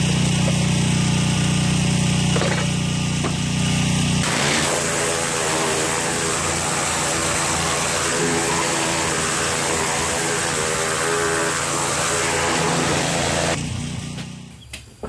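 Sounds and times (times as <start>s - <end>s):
pressure washer engine hum: 0.0s - 14.6s.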